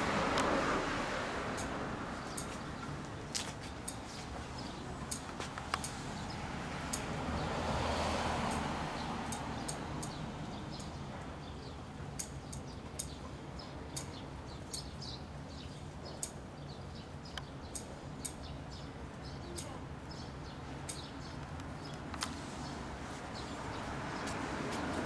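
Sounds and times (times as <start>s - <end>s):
vehicle passing: 0.0s - 11.4s, 21.7s - 25.0s
small birds chirping: 1.2s - 25.0s.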